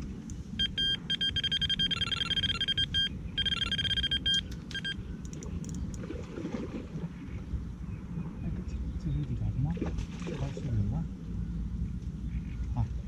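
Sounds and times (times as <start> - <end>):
high-pitched bite alarm beeping: 0.6 - 5.0.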